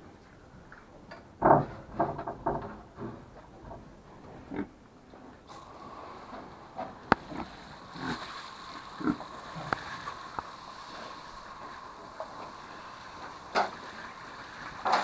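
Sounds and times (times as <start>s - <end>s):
pig grunts: 4.4s - 4.8s, 9.0s - 9.2s
hose spray nozzle hissing: 7.1s - 15.0s.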